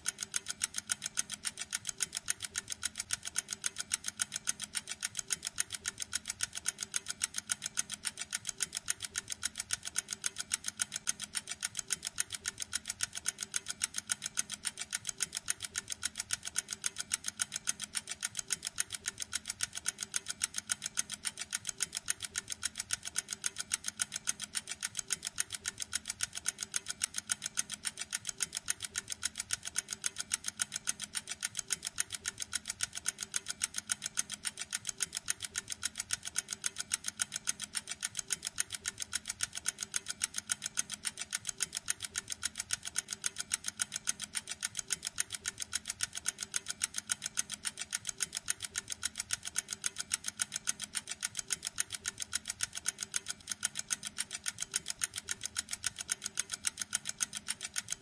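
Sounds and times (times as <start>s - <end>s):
pocket watch ticking: 0.0s - 58.0s.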